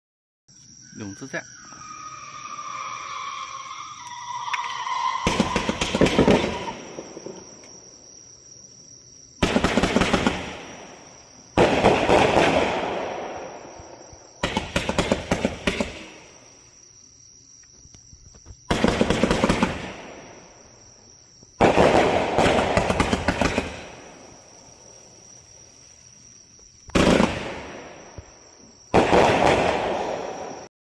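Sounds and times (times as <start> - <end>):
fireworks cake firing rapid shots: 5.2 - 7.2, 9.4 - 11.0, 11.6 - 13.6, 14.4 - 16.3, 18.7 - 20.3, 21.6 - 24.2, 26.9 - 28.1, 28.9 - 30.7.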